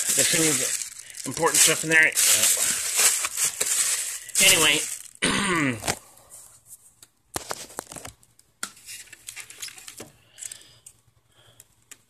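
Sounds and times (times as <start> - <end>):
plastic wrap crinkling: 0.0 - 5.2, 7.4 - 8.2, 8.8 - 10.6.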